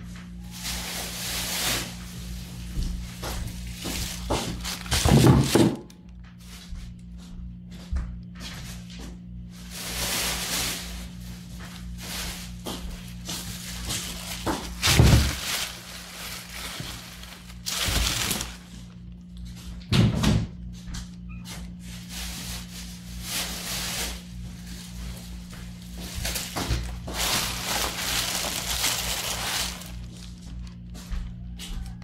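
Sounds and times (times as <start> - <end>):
plastic bags rustling: 0.0 - 6.1, 9.5 - 19.9, 21.8 - 31.0.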